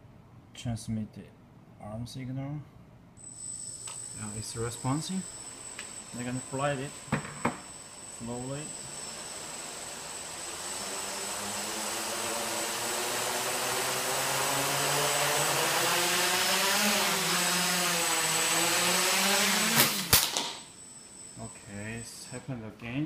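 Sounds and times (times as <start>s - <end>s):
drone motors whining: 3.2s - 22.2s.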